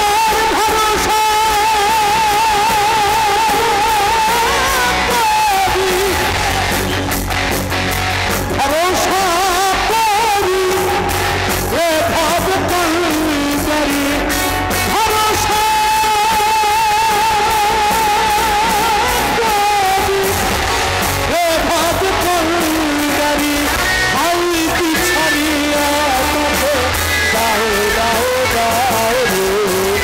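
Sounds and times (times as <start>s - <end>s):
man singing ornamented melody: 0.0s - 7.0s, 8.6s - 20.5s, 21.3s - 30.0s
rock band with guitar: 0.0s - 30.0s.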